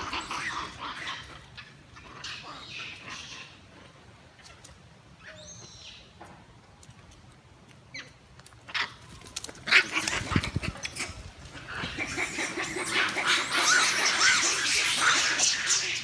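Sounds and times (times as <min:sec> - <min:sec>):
macaques squeaking and screeching: 0:00.0 - 0:03.9, 0:05.2 - 0:06.0, 0:09.6 - 0:16.0.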